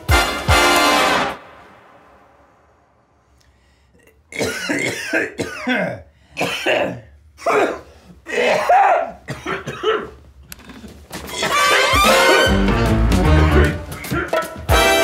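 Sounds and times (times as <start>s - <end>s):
person coughing: 4.0s - 10.2s.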